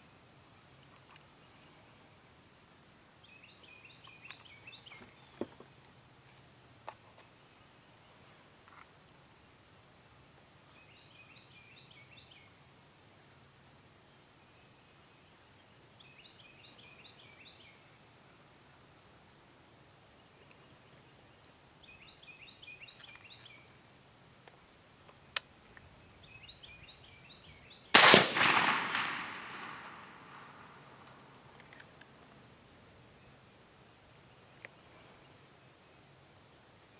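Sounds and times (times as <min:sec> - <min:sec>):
small birds singing: 0:00.0 - 0:05.9, 0:10.4 - 0:13.4, 0:14.0 - 0:18.1, 0:18.9 - 0:36.9
suppressed rifle shot: 0:27.9 - 0:31.0.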